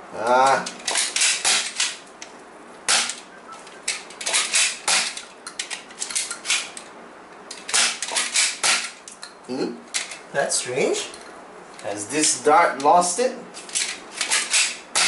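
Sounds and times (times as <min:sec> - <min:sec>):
toy dart blaster priming and firing: 0:02.9 - 0:03.2, 0:07.7 - 0:09.0, 0:14.2 - 0:15.0.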